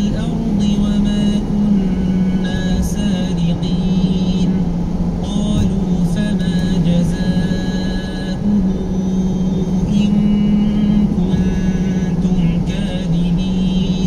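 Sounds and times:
car road noise from inside: 0.0 - 14.0
man reciting in long notes: 0.0 - 14.0.

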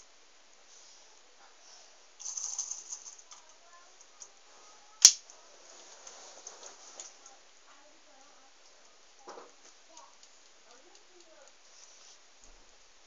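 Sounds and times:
sharp plastic click: 5.0 - 5.2.

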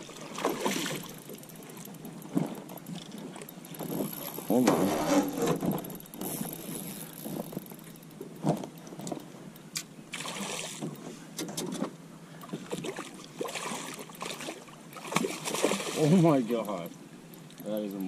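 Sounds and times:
fish splashing at surface: 10.1 - 10.9, 12.7 - 16.2.

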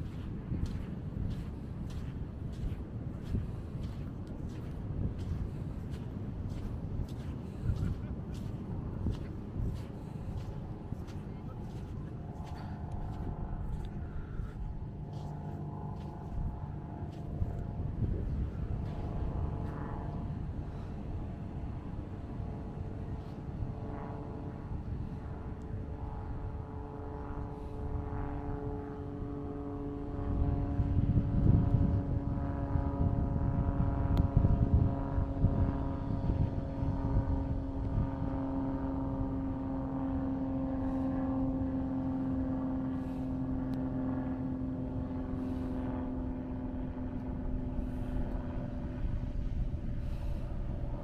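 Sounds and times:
low rumble: 0.0 - 20.9
engine drone: 0.0 - 51.0.

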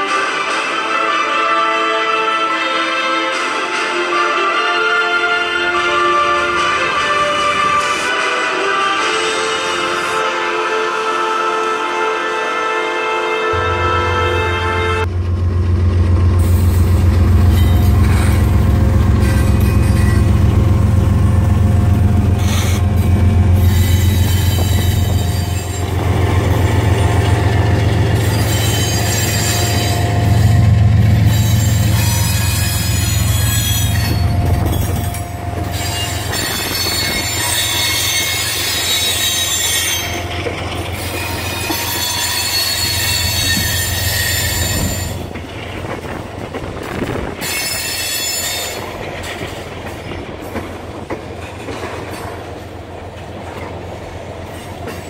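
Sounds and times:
locomotive engines droning: 0.0 - 55.0
wheel squeal: 17.5 - 20.5, 22.2 - 45.4, 47.4 - 48.9.

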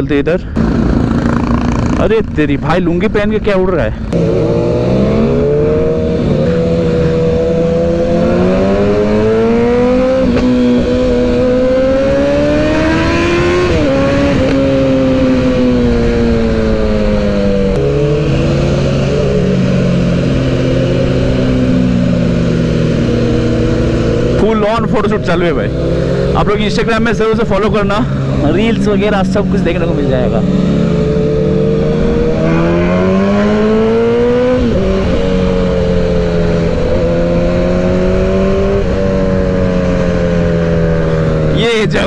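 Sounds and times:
motorcycle engine revving: 0.5 - 3.0, 3.9 - 42.0
wind on microphone: 30.4 - 41.5.

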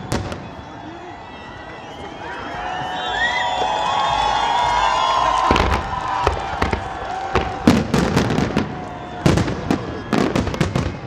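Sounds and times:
fireworks bangs and crackles: 0.0 - 0.8, 3.4 - 11.0.

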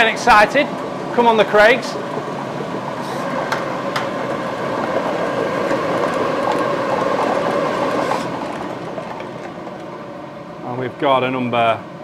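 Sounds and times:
blowers churning: 0.0 - 12.0.

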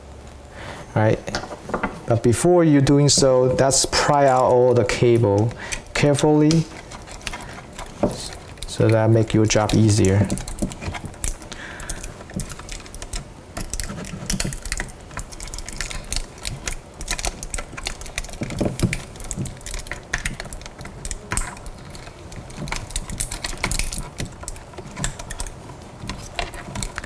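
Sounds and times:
plastic tool clicking and scraping: 2.8 - 27.0.

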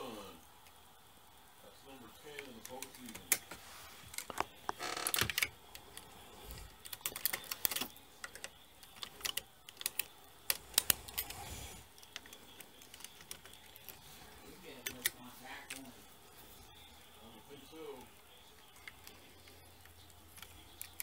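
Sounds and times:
knitting machine needles clicking: 2.3 - 16.6, 17.5 - 21.0.

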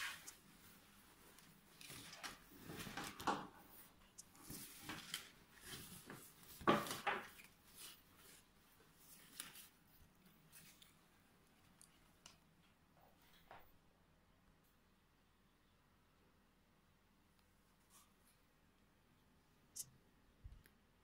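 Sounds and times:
fabric and paper tags rustling: 0.0 - 12.4.

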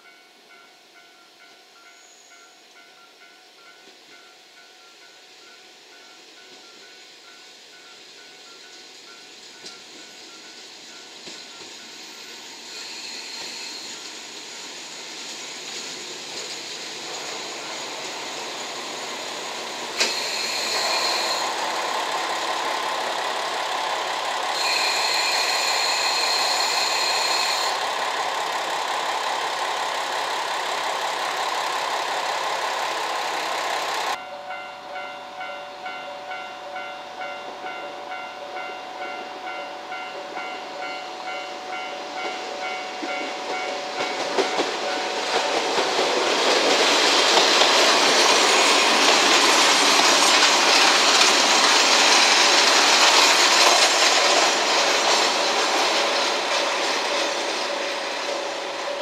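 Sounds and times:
diesel railcar approaching: 0.0 - 59.0
diesel railcars passing: 0.0 - 59.0
high squeal from running gear: 11.4 - 14.6, 20.0 - 21.8, 24.5 - 27.9
level crossing warning bell: 19.2 - 46.8.

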